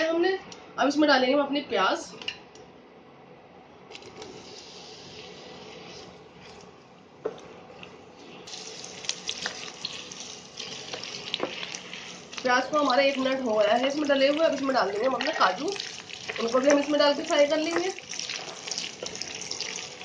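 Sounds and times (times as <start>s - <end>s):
onions sizzling in hot oil: 8.5s - 20.0s.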